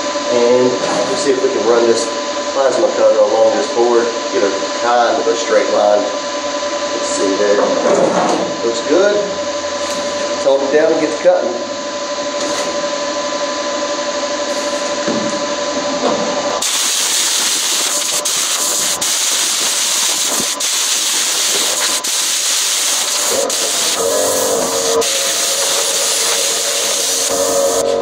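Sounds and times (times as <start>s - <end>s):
loud steady hiss: 16.6s - 28.0s.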